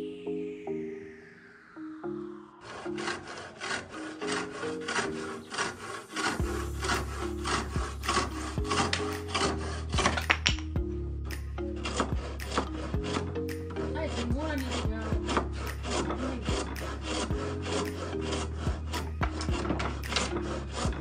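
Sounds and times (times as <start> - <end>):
hand saw rasping through wood: 2.6 - 10.7, 11.3 - 21.0.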